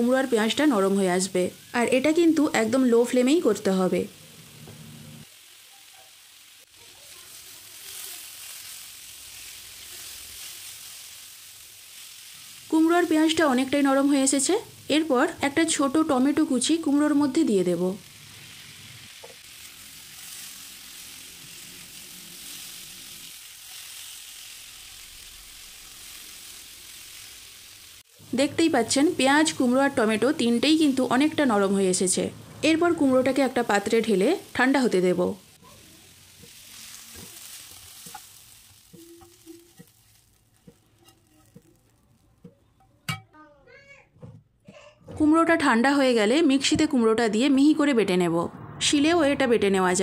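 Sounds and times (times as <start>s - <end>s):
vegetables sizzling in oil: 0.0s - 43.4s
spatula stirring in pan: 6.7s - 12.6s, 35.6s - 43.2s.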